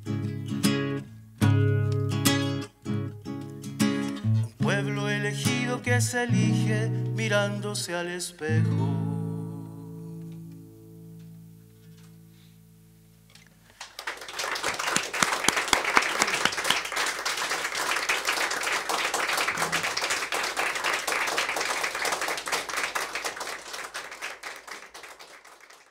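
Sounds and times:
acoustic guitar chord ringing: 8.5s - 13.4s
applause: 13.8s - 25.9s.

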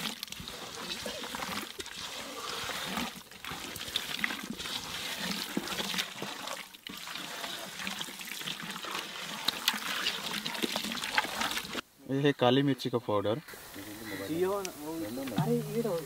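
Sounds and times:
wet squelching of hand mixing fish: 0.0s - 11.8s.

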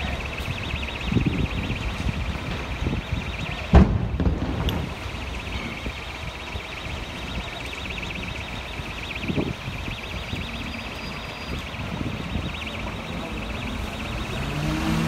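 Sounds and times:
alarm ringing with fast pulse: 0.0s - 3.7s, 4.7s - 15.0s
wind rumble on microphone: 0.0s - 15.0s
loud bang: 3.7s - 5.0s.

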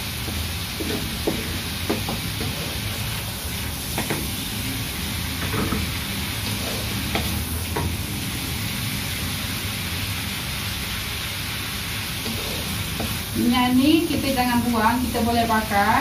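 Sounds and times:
hot oil sizzling in a wok: 0.0s - 16.0s
wooden spatula knocking pan: 0.3s - 2.6s.

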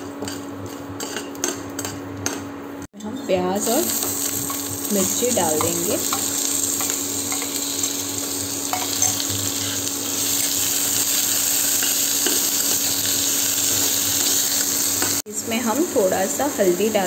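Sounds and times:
onions sizzling in hot oil: 3.4s - 17.0s.

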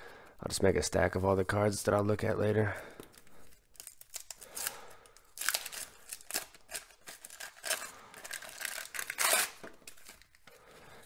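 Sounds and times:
wax paper wrapper tearing and crinkling: 3.2s - 10.5s.

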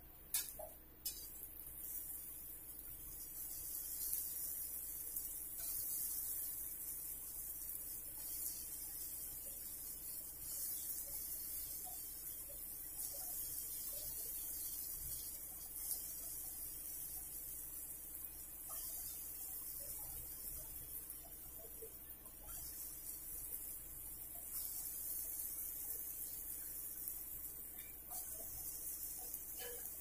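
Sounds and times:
oil sizzling while deep-frying: 0.0s - 30.0s.

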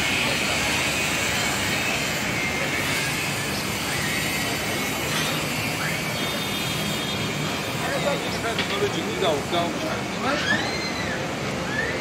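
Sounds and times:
city traffic noise: 0.0s - 12.0s.

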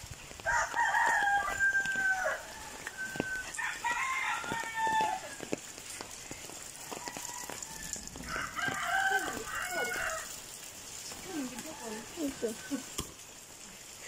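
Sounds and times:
rooster crowing: 0.4s - 5.5s, 6.8s - 10.4s, 11.4s - 12.9s.

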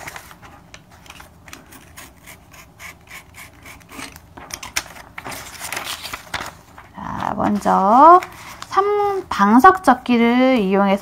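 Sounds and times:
utility knife scraping through paper: 1.1s - 6.2s.

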